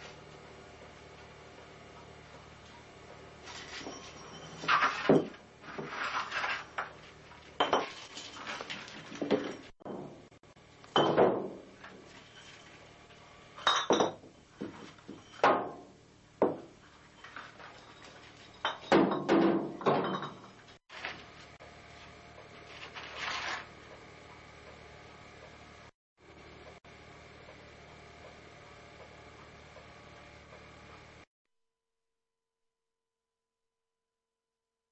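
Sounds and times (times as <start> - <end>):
glass bottles clinking on tiles: 7.6 - 9.7, 10.9 - 11.3, 13.6 - 14.3, 17.2 - 20.7.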